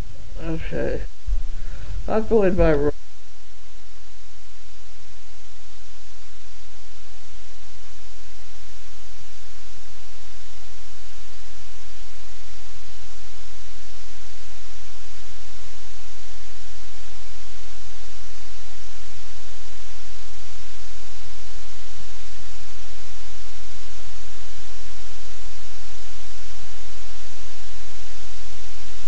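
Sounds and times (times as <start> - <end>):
low hum: 0.0 - 3.1
static-like hiss: 0.0 - 29.0.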